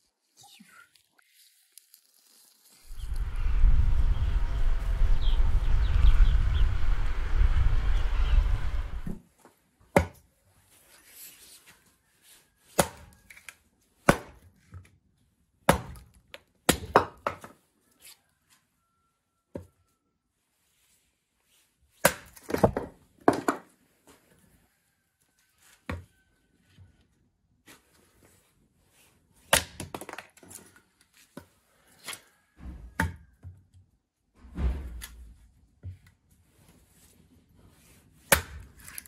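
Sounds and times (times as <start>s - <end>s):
low rumble: 2.9s - 9.2s
hatchet splitting wood: 12.8s - 13.1s, 14.1s - 14.4s, 15.7s - 16.1s, 16.7s - 17.4s, 29.5s - 30.2s, 38.3s - 39.0s.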